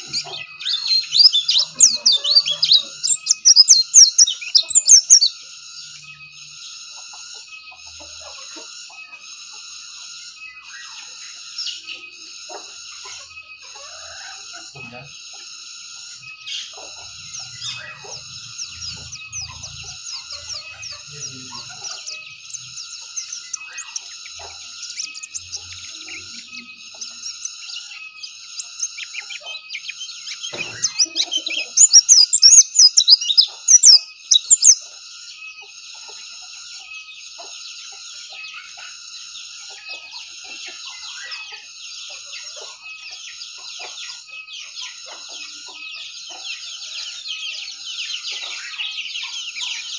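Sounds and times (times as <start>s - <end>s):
high chirping notes: 0.0s - 10.8s, 15.8s - 34.8s
bird singing rapid high warble: 0.0s - 49.9s.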